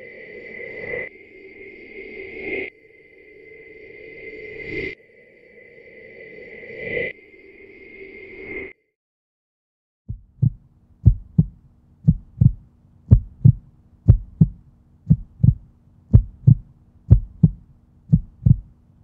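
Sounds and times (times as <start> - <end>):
heartbeat thumps: 10.1 - 18.8
faint low hum: 10.1 - 19.0.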